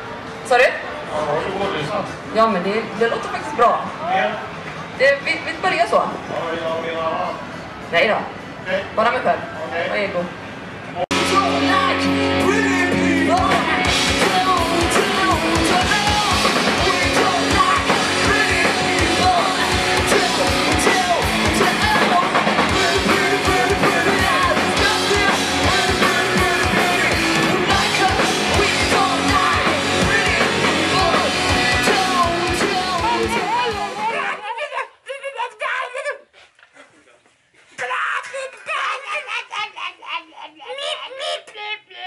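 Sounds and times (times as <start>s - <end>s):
live rock band playing: 11.1s - 34.3s
vocals over rock music: 11.1s - 34.3s.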